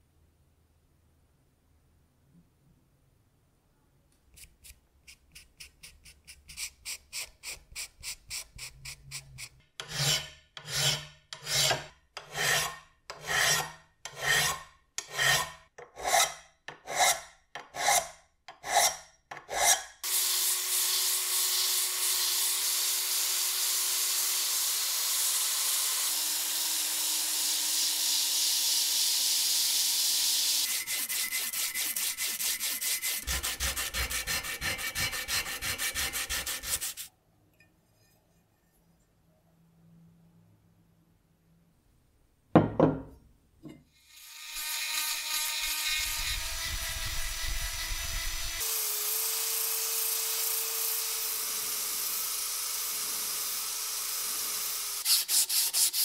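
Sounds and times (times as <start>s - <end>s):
drill spinning sanding disc: 20.0s - 37.1s, 44.1s - 55.5s
sandpaper strokes on metal: 30.6s - 37.1s, 55.0s - 56.0s.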